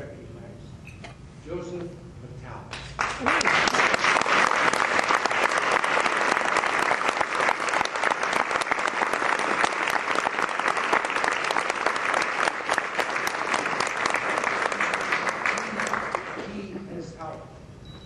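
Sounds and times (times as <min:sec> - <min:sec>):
audience applauding: 0:02.7 - 0:16.5.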